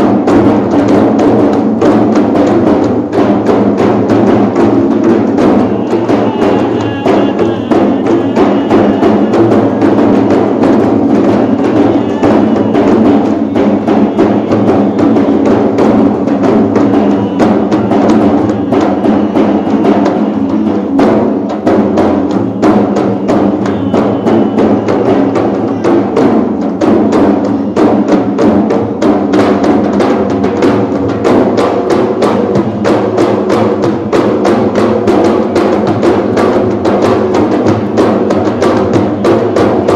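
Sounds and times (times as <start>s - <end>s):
frame drums beating: 0.0s - 39.9s
man chanting: 5.7s - 9.4s, 11.5s - 14.8s.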